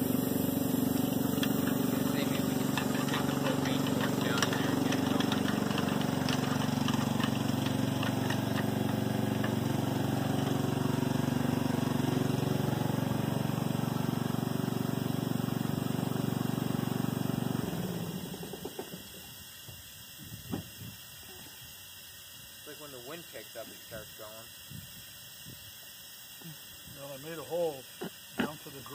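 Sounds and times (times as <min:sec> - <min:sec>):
motor droning: 0:00.0 - 0:19.0.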